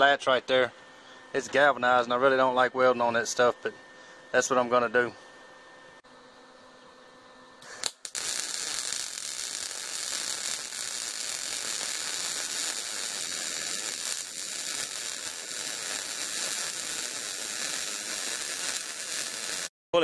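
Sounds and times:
arc welder crackling sizzle: 7.6 - 19.7.

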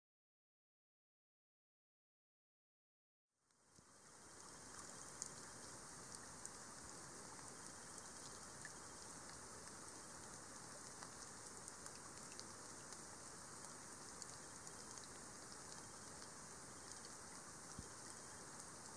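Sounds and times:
rain falling into puddle: 3.5 - 18.9.

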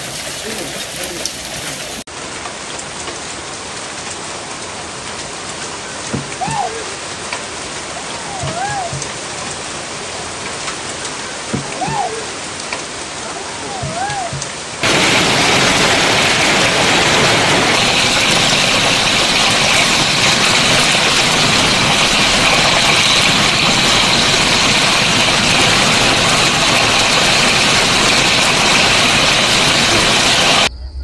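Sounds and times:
heavy hail striking ground: 13.8 - 30.7.

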